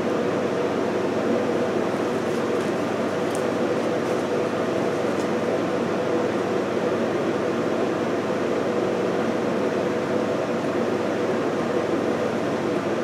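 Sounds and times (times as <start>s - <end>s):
fan whirring: 0.0s - 13.0s.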